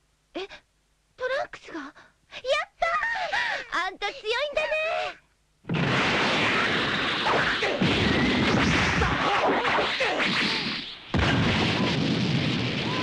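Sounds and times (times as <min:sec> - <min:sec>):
cartoon punch impacts: 0:05.6 - 0:13.0.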